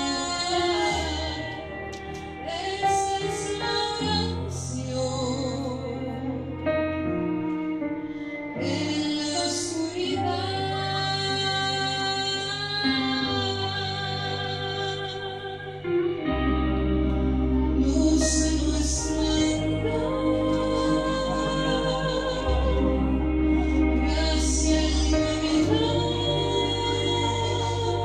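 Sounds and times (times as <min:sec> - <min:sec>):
instrumental accompaniment with bass: 0:00.0 - 0:28.0
woman singing into microphone: 0:00.0 - 0:28.0.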